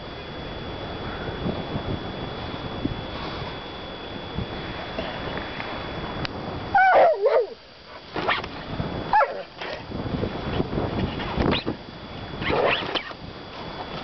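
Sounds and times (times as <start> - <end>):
dog whining yelps: 6.8 - 7.6, 9.1 - 9.5.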